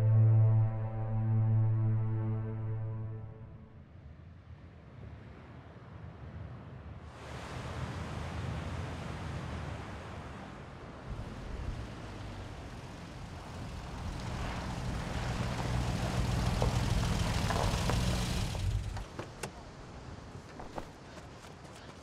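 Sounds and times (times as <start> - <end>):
vehicle engine running: 11.1 - 19.2
tyres hissing on gravel: 13.4 - 19.0.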